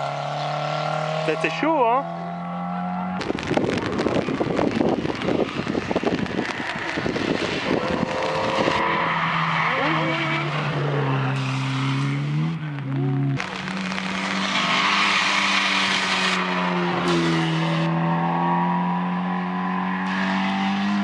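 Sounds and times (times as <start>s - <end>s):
rally car engine: 0.0s - 21.0s
rough crackly noise: 3.2s - 17.9s.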